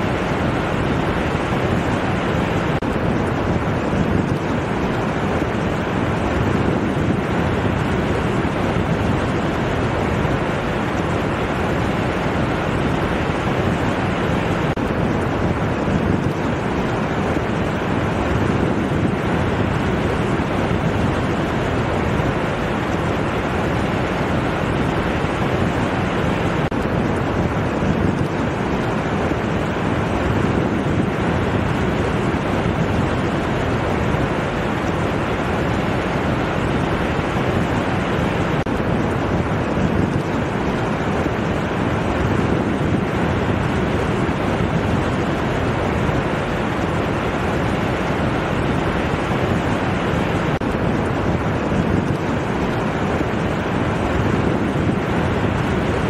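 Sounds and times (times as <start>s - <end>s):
waves breaking on beach: 0.0s - 56.0s.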